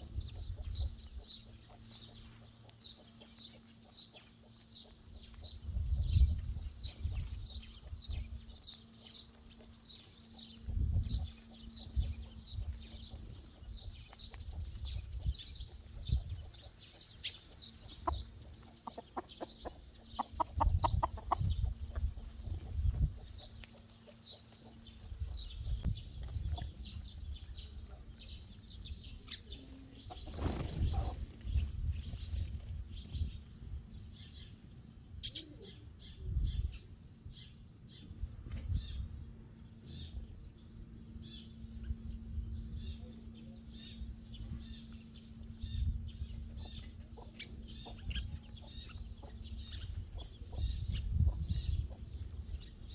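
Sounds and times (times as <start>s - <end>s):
sparrows chirping: 0.0s - 52.9s
hens clucking: 11.1s - 26.9s, 46.4s - 52.4s.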